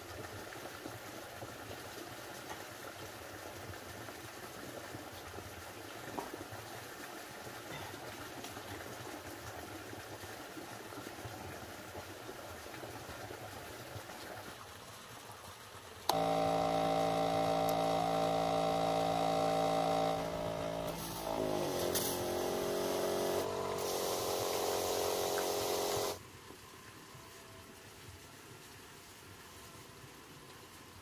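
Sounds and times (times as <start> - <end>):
sprayer pump motor humming: 16.1 - 26.2.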